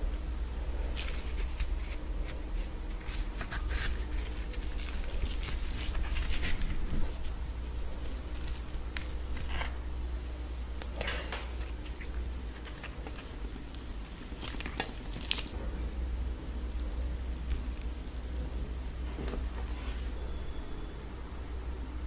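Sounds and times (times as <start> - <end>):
steady low hum: 0.0 - 22.0
hands tearing soft bread: 0.9 - 9.8, 10.8 - 15.6, 16.5 - 20.3
squishing of thick gravy: 11.6 - 15.6, 16.2 - 20.6.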